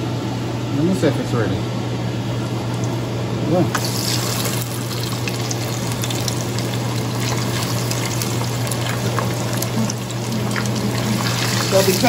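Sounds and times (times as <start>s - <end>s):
fish sizzling in hot oil: 3.8s - 12.0s.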